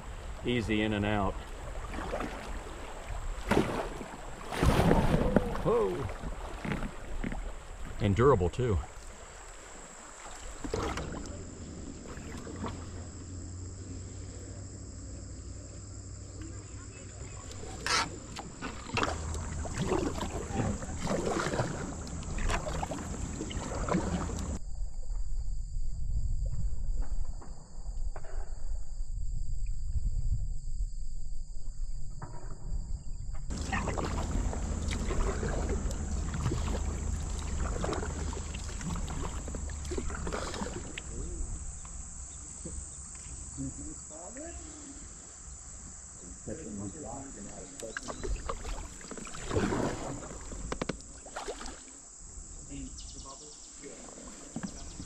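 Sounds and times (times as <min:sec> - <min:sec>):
running water: 0:00.0 - 0:13.3, 0:16.5 - 0:24.6, 0:33.5 - 0:42.8
paddle splashes: 0:00.0 - 0:14.5, 0:15.6 - 0:24.6, 0:33.5 - 0:43.4, 0:47.2 - 0:55.0
high insect buzz: 0:08.9 - 0:24.6, 0:33.1 - 0:47.4.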